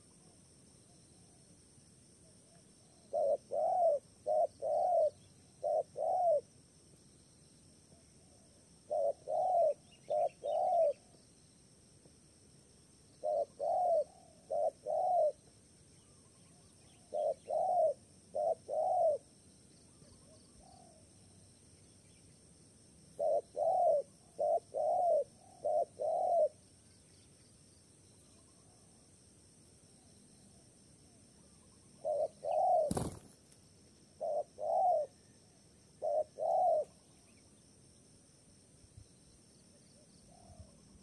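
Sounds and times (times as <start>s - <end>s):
dove cooing: 2.9s - 6.5s, 8.4s - 11.2s, 13.2s - 15.4s, 17.0s - 19.3s, 23.2s - 26.6s, 32.0s - 33.3s, 34.2s - 35.4s, 36.0s - 37.0s.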